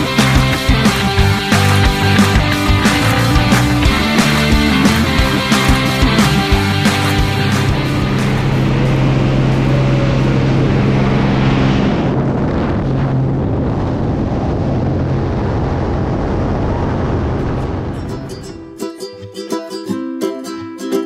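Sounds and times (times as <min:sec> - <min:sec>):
propeller engine drone: 0:00.0 - 0:18.6
wind rushing: 0:00.0 - 0:18.7
steady low hum: 0:06.5 - 0:18.2.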